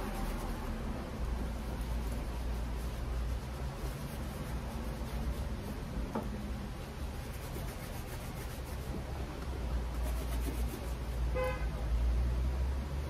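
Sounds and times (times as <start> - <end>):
hands rubbing leather boots: 0.0 - 6.2, 7.0 - 9.1, 9.9 - 11.1
low steady hum: 0.0 - 13.0.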